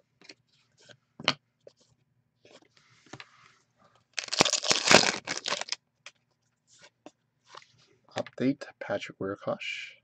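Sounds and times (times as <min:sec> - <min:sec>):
cards rustling: 0:04.2 - 0:05.8.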